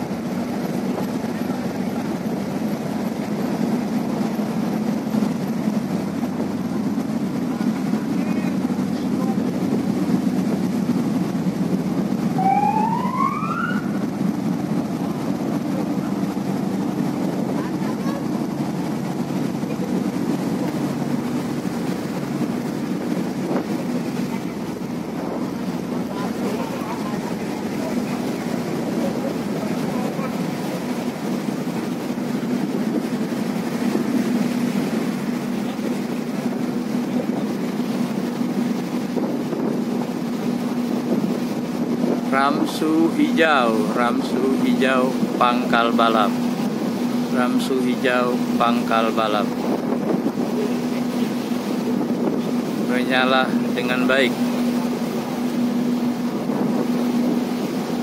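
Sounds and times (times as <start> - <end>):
ship engine and water rumble: 0.0 - 58.0
wind noise on microphone: 13.6 - 47.4, 49.4 - 58.0.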